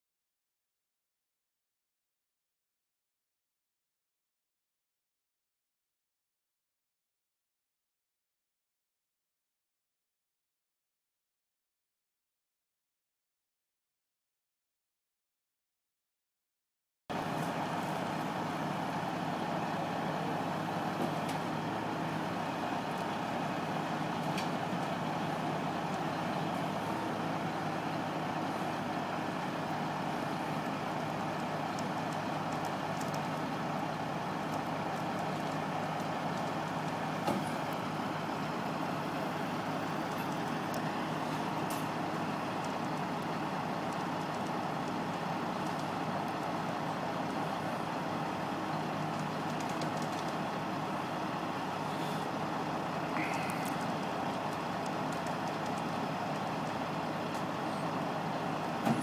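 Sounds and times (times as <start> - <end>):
diesel truck engine running: 17.1 - 59.0
faint clicks: 53.1 - 57.6.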